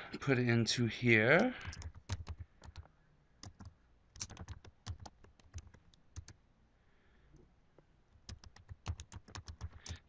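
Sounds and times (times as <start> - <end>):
keyboard typing: 1.6 - 6.4, 8.2 - 10.0.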